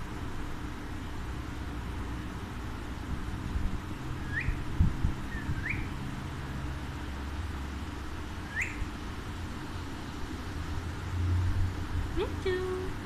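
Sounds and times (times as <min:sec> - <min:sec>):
parakeet whistled chirps: 0:04.3 - 0:04.6, 0:05.3 - 0:05.9, 0:08.5 - 0:08.8.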